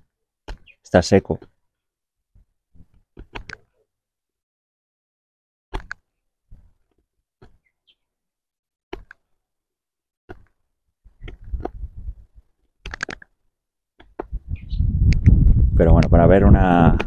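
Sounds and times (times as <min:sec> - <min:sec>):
wind rumble on microphone: 0:11.1 - 0:12.5, 0:14.2 - 0:17.0.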